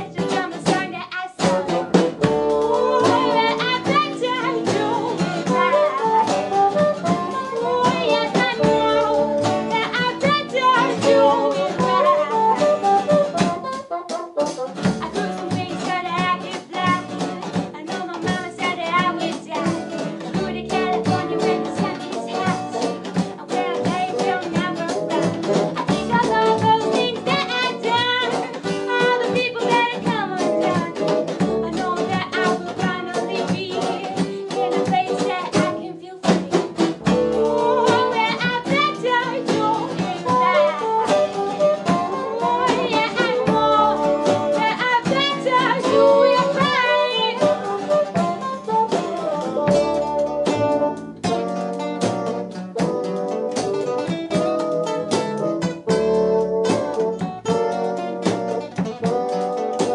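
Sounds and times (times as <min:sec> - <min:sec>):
indie rock band playing: 0:00.0 - 0:59.9
bassoon: 0:01.4 - 0:17.7, 0:36.6 - 0:59.9.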